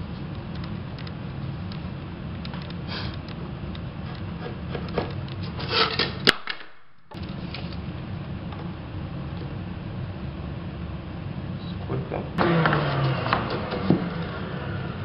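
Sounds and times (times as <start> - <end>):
steady low hum: 0.0 - 15.0
scraping and clatter: 4.1 - 6.2.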